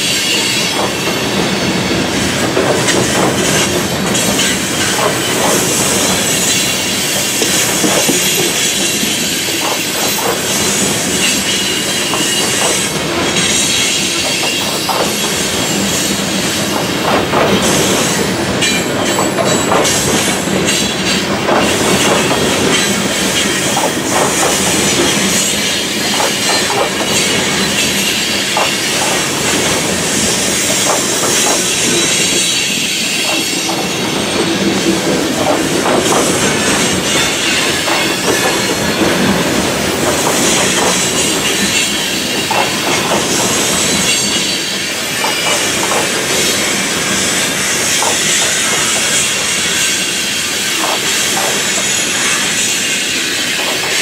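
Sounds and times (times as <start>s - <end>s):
train wheels clattering on rails: 0.0s - 54.0s.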